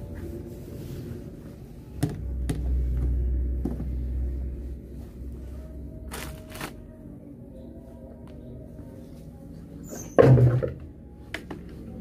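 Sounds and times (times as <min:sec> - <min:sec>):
coverall rustling: 0:05.0 - 0:06.8.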